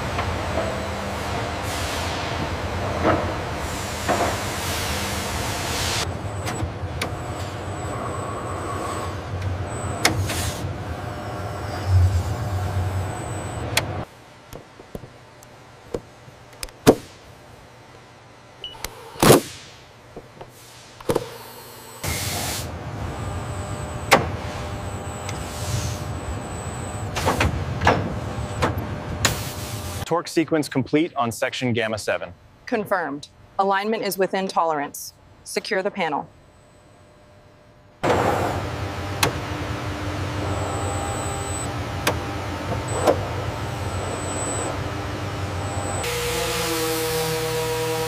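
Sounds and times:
machinery low hum: 0.0 - 48.0.

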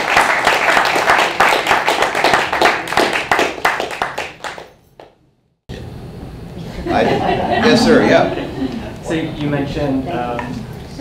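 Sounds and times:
audience applauding: 0.0 - 4.7.

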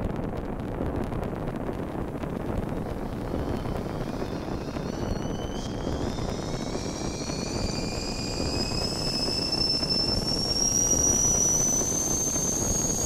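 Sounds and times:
steady rushing noise: 0.0 - 13.0
kettle whistling: 2.6 - 13.0.

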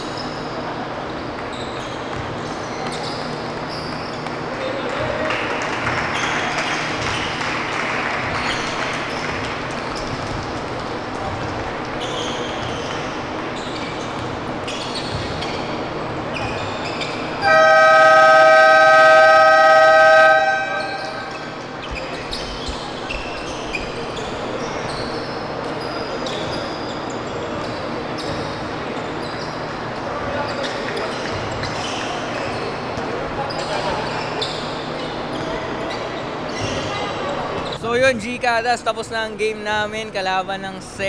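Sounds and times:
basketball bouncing: 8.2 - 13.4, 14.1 - 15.8
scoreboard buzzer blast: 17.4 - 21.4.

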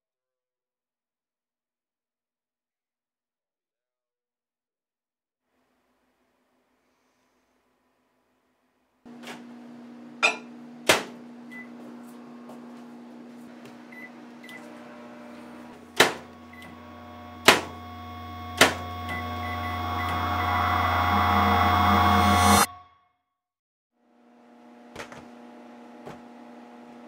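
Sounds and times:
microwave oven humming: 9.1 - 22.7, 24.2 - 27.0
microwave door clicks and clunks: 10.2 - 11.2, 16.0 - 16.3.

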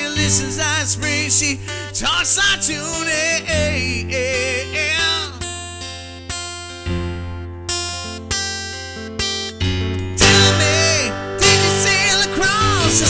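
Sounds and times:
person singing with vibrato: 0.0 - 5.9, 10.1 - 13.0
keyboard: 0.0 - 13.0
strummed acoustic guitar: 0.0 - 13.0.

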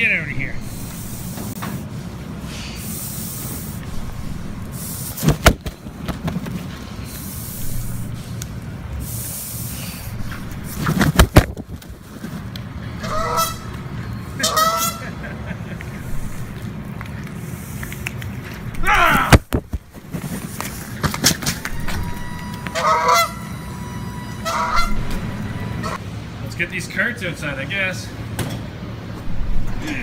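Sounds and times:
goose hissing: 0.6 - 1.6, 2.4 - 5.3, 7.0 - 8.3, 9.0 - 10.8
goose honks: 13.0 - 13.7, 14.4 - 15.2, 22.6 - 23.5, 24.4 - 25.1.

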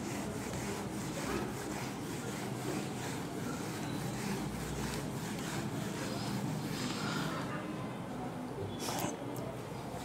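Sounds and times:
duster wiping a whiteboard: 0.0 - 7.4.

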